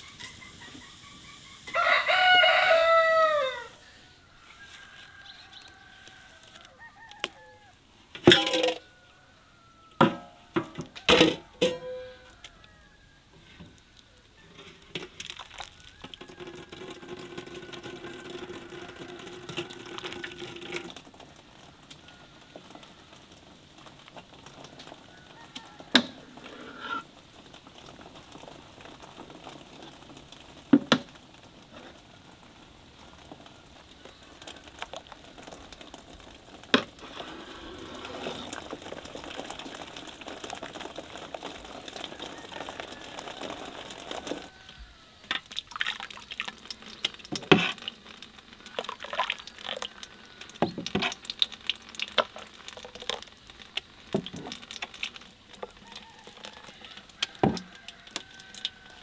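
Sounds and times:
thick puree bubbling: 13.6s - 59.0s
liquid pouring: 14.8s - 59.0s.

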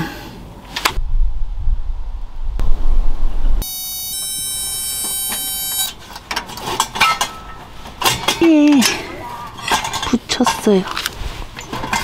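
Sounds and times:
low rumble: 1.0s - 3.6s
electronic beeping tone: 3.6s - 5.9s.

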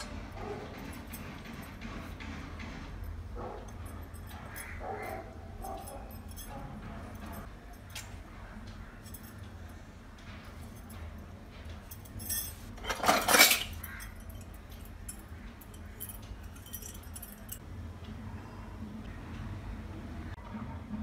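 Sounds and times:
metallic clatter: 0.0s - 17.6s
brass vessels clinking: 11.8s - 17.6s.

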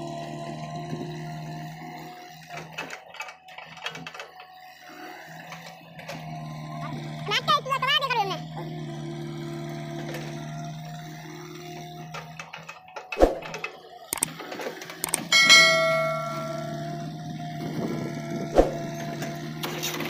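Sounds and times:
engine humming: 4.8s - 20.0s
sharp clicks: 15.0s - 15.3s
notification bell ding: 15.2s - 17.1s.

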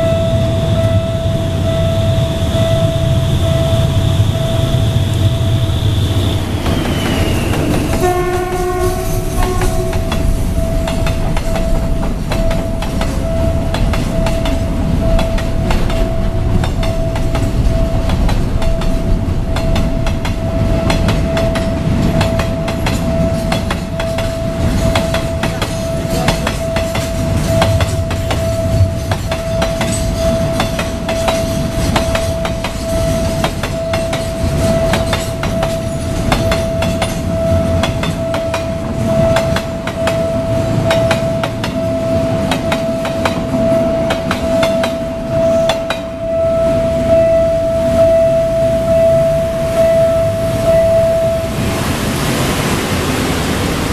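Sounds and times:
train horn: 0.0s - 11.9s
freight train rolling past: 0.0s - 53.9s
level crossing warning bell: 0.0s - 53.9s
wheels clattering over rail joints: 1.6s - 46.3s.

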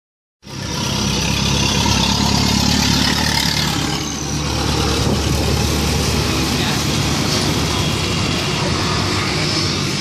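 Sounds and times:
street noise hiss: 4.1s - 10.0s.

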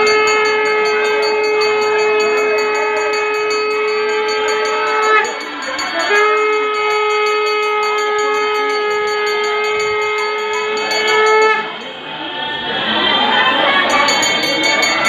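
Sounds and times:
conch shell blown: 0.0s - 11.9s
murmur of people: 0.0s - 15.0s.

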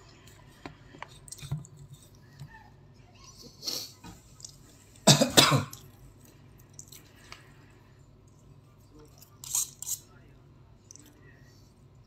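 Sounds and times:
person coughing: 5.0s - 5.8s.

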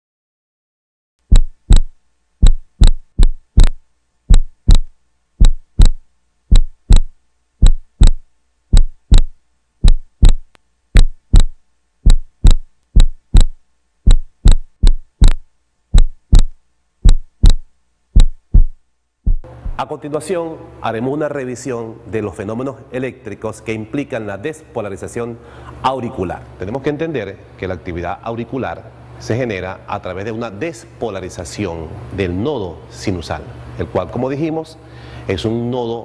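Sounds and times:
heartbeat thumps: 1.2s - 19.8s.

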